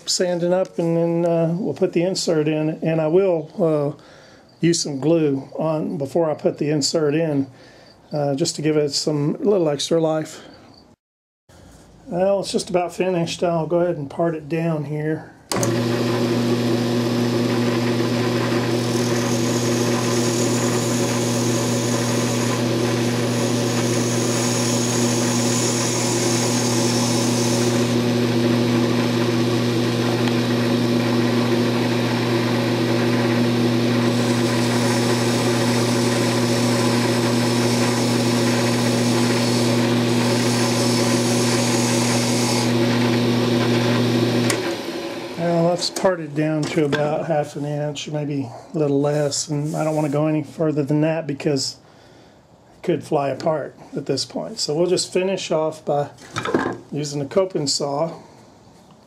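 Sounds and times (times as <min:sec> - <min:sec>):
lathe motor hum: 0:15.5 - 0:45.5
tool scraping spinning wood: 0:15.6 - 0:44.8.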